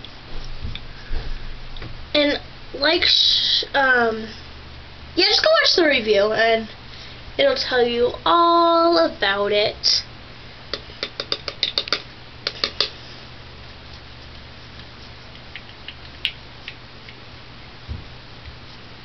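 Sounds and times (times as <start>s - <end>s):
low steady hum: 0.0s - 19.0s
fingers tapping skin: 10.7s - 13.0s, 13.9s - 17.2s.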